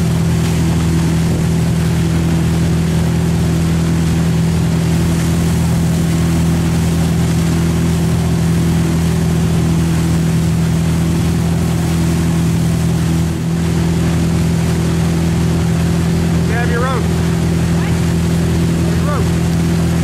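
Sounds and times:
churning wake rushing: 0:00.0 - 0:20.0
motorboat engine droning: 0:00.0 - 0:20.0.

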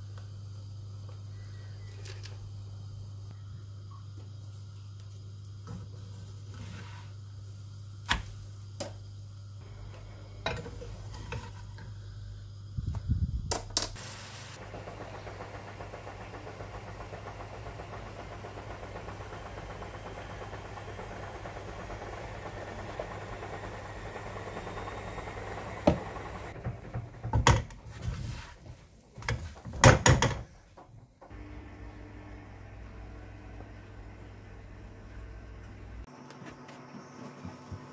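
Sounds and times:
batter sizzling in pan: 0:13.8 - 0:15.7.

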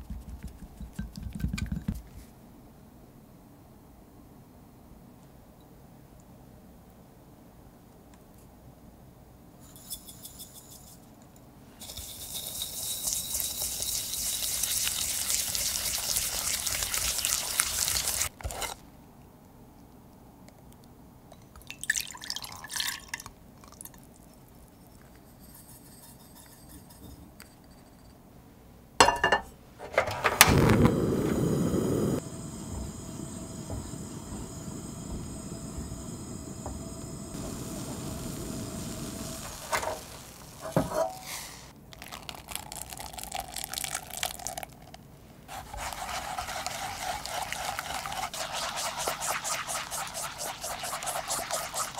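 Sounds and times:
whisk beating in glass bowl: 0:00.0 - 0:02.0, 0:11.8 - 0:18.3, 0:45.5 - 0:51.9
gas burner clicking: 0:29.9 - 0:40.9
gas flame whoosh and rush: 0:30.2 - 0:41.7.

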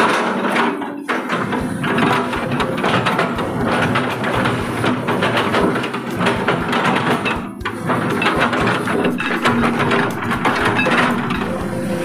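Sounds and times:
excavator diesel engine: 0:00.0 - 0:12.0
metal knocks clattering: 0:00.0 - 0:12.0.

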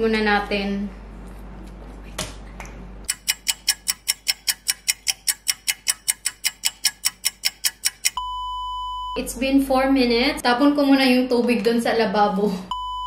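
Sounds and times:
clock ticking: 0:03.1 - 0:08.2.

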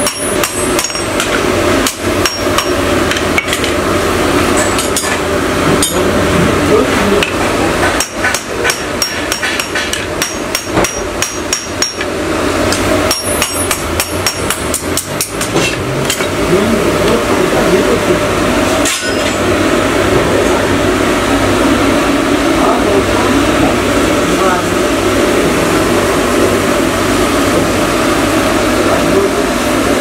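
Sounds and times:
hammer striking metal blade: 0:00.0 - 0:03.8, 0:07.2 - 0:16.4, 0:18.7 - 0:19.4
steady hum: 0:00.0 - 0:30.0.

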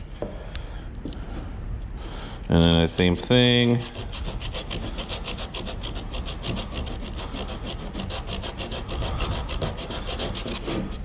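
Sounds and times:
sandpaper scratching on wood: 0:02.5 - 0:11.0.

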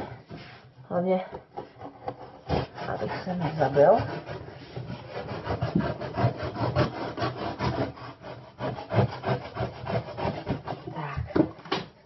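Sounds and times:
knife sawing through cardboard: 0:01.6 - 0:11.1.

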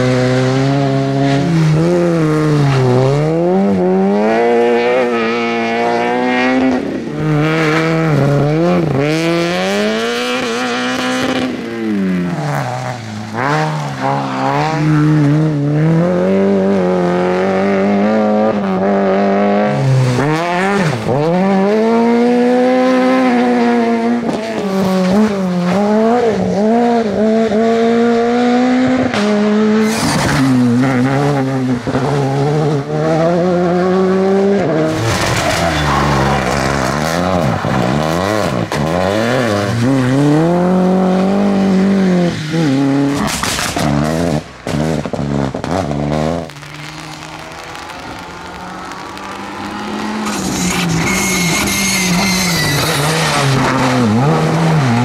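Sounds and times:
rally car engine revving: 0:00.0 - 0:55.0.

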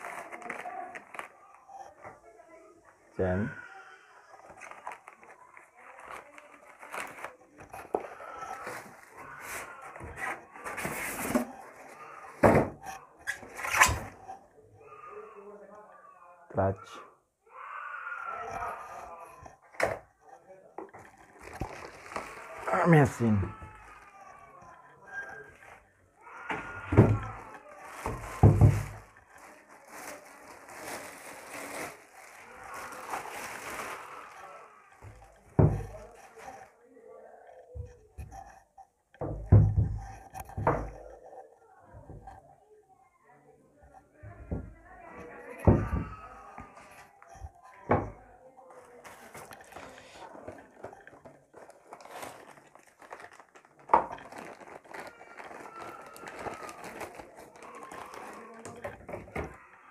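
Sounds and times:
packaging rustling: 0:00.0 - 0:02.0, 0:04.3 - 0:12.0, 0:20.9 - 0:36.7, 0:48.9 - 0:59.6
plastic wrapping crinkling: 0:00.0 - 0:02.3, 0:04.3 - 0:12.1, 0:20.9 - 0:36.8, 0:48.9 - 0:59.7.

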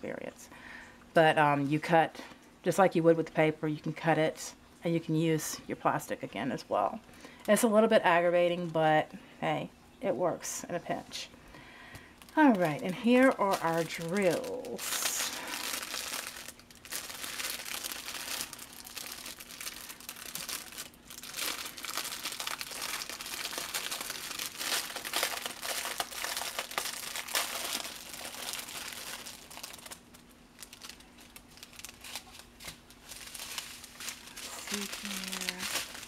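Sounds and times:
faint steady hum: 0:00.0 - 0:36.0
plastic bags crinkling: 0:12.0 - 0:36.0.

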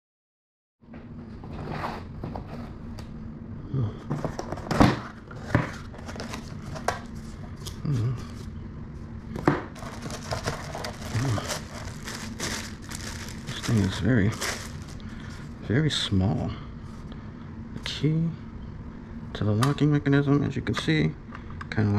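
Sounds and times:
packaging crinkling: 0:09.8 - 0:15.5.

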